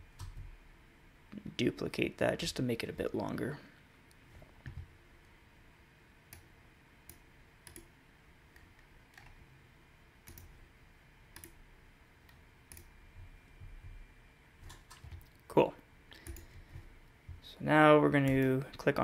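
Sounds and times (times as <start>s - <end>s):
faint room hum: 0.0s - 19.0s
computer mouse clicking: 7.1s - 7.9s, 8.5s - 9.4s, 10.2s - 10.6s, 11.3s - 11.6s, 12.2s - 14.0s, 14.6s - 15.4s, 16.1s - 17.4s.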